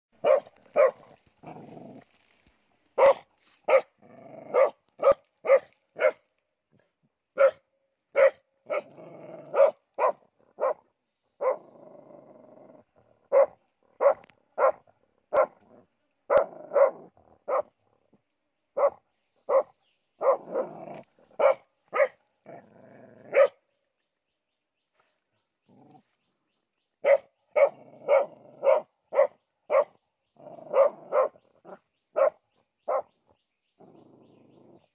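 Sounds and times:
dog barking: 0:00.2 - 0:01.1, 0:03.0 - 0:03.9, 0:04.5 - 0:06.2, 0:07.4 - 0:08.9, 0:09.5 - 0:10.8, 0:11.4 - 0:11.6, 0:13.3 - 0:15.6, 0:16.3 - 0:17.7, 0:18.8 - 0:20.6, 0:21.4 - 0:22.2, 0:23.3 - 0:23.6, 0:27.0 - 0:30.0, 0:30.7 - 0:33.1.

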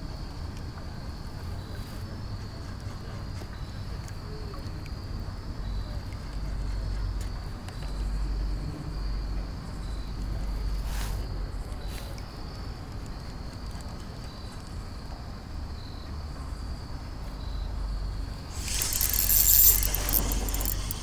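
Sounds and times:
cricket trilling: 0:17.3 - 0:21.0
sharp clicks: 0:18.6 - 0:21.0.

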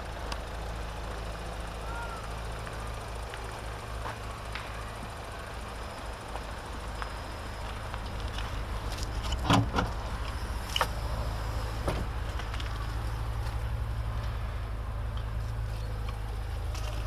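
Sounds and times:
tailgate release clunk: 0:09.4 - 0:09.9.

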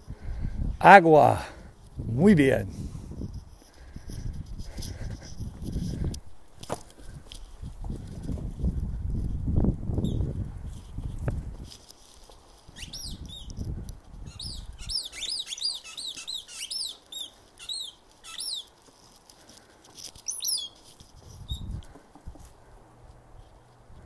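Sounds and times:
squeaky toy squeaks: 0:14.3 - 0:18.7.

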